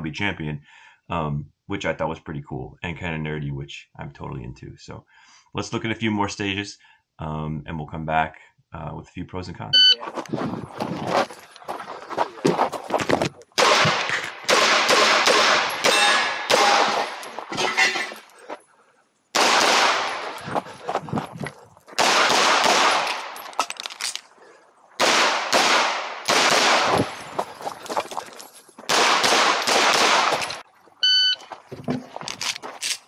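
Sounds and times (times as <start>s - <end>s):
electronic shot timer beep: 9.8s - 10.0s, 31.0s - 31.4s
rapid pistol fire: 13.6s - 17.0s, 19.3s - 20.4s, 22.0s - 23.4s, 25.0s - 27.2s, 28.9s - 30.4s.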